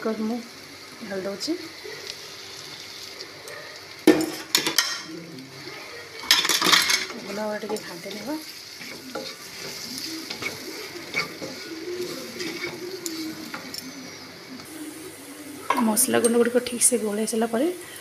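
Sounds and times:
light sizzle of frying: 0.0 - 18.0
wooden spatula scraping a pan: 6.4 - 14.0.

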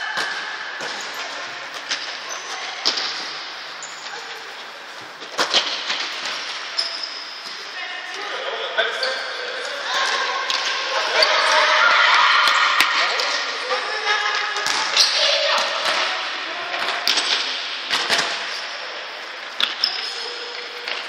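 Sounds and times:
children shouting: 9.8 - 13.2.

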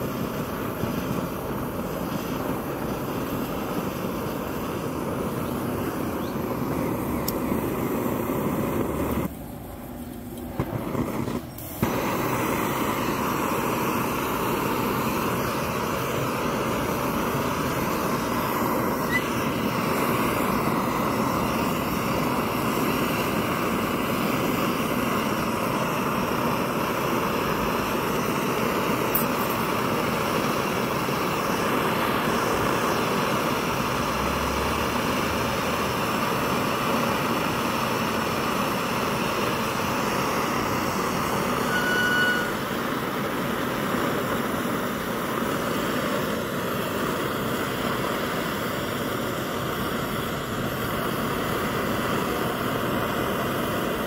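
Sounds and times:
pressure stove burner rushing: 0.0 - 54.0
high whistle: 17.4 - 22.0, 41.3 - 42.8.

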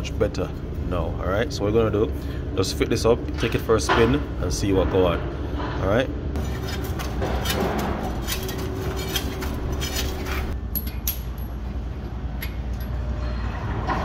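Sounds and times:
steady low hum: 0.0 - 14.0
metallic clinks of wheel nuts: 10.6 - 13.1.

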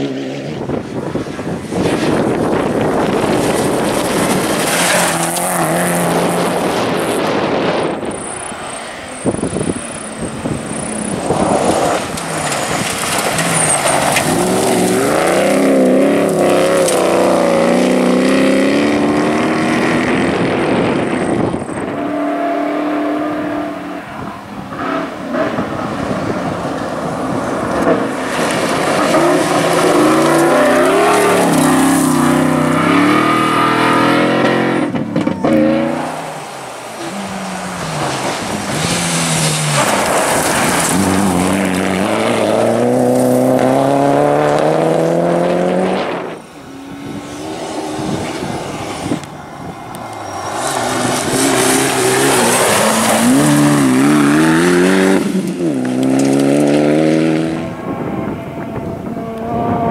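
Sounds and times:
rally car engines revving: 0.0 - 59.9
tyres rushing on gravel: 1.8 - 18.2, 24.6 - 33.6, 35.0 - 44.3, 45.7 - 56.8.

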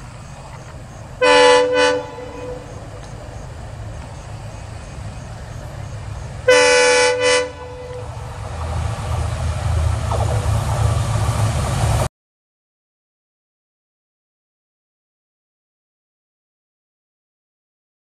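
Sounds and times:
train rumbling: 0.0 - 12.1
locomotive horn blasts: 1.2 - 3.1, 6.4 - 8.4.

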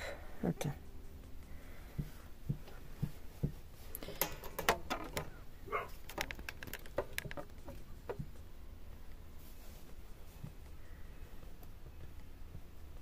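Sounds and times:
scratchy rustle: 9.3 - 10.4.

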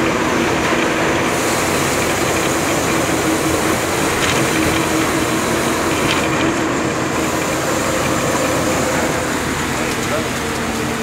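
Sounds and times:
vehicle road and engine noise: 0.0 - 11.0.

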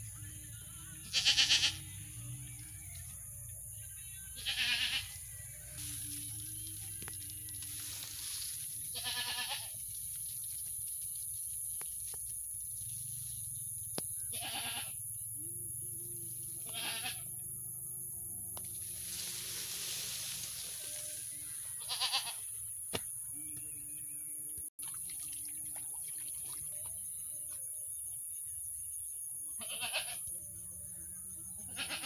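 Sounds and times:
goat bleating: 1.0 - 1.8, 4.4 - 5.1, 8.9 - 9.8, 14.3 - 15.0, 16.6 - 17.4, 21.8 - 22.5, 29.6 - 30.3, 31.6 - 32.0.

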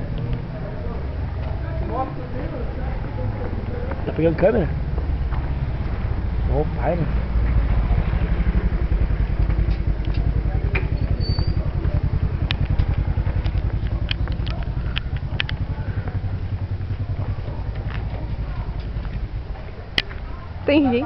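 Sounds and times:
vehicle engine running: 0.0 - 21.0
sharp clicks: 12.2 - 15.7.

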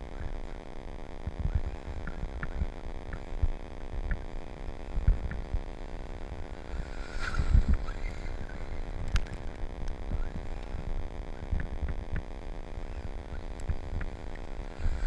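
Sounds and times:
sharp clicks and ticks: 1.2 - 5.6, 9.0 - 10.7, 11.4 - 12.4, 13.3 - 14.5
rc trucks rumbling on snow: 1.2 - 15.0.

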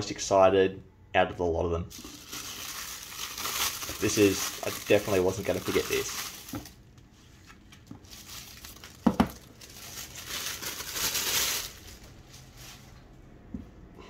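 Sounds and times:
tissue paper crinkling: 1.9 - 6.8, 7.4 - 13.0.

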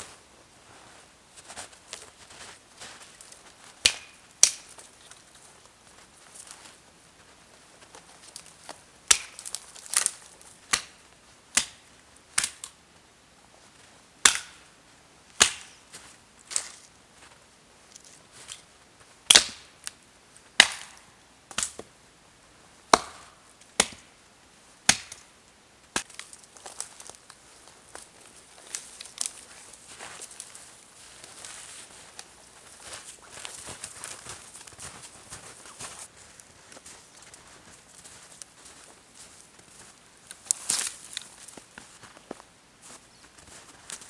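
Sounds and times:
dry branches snapping: 3.0 - 5.5, 7.9 - 11.0, 11.6 - 11.8, 12.4 - 12.8, 14.2 - 14.6, 15.4 - 15.8, 19.3 - 20.0, 20.6 - 21.8, 24.9 - 25.3, 25.9 - 34.9, 40.3 - 41.6.

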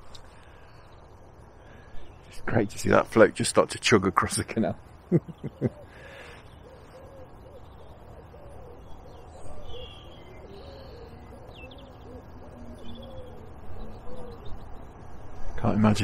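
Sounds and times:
small birds chirping: 0.0 - 16.0
pigeon cooing: 5.2 - 14.6.

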